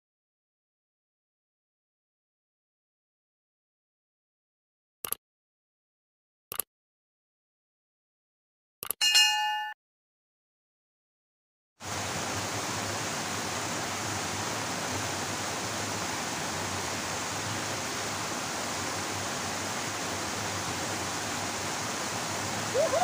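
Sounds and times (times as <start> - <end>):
water rushing from a pipe: 11.8 - 23.0.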